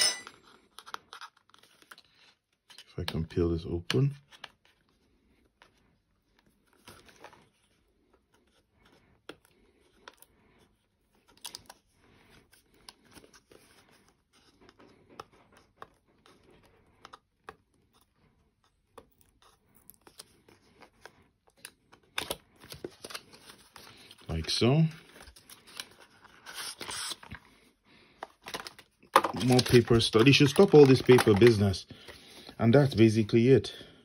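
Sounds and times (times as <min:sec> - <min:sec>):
packaging rustling: 0:19.2 - 0:27.5, 0:28.1 - 0:33.3.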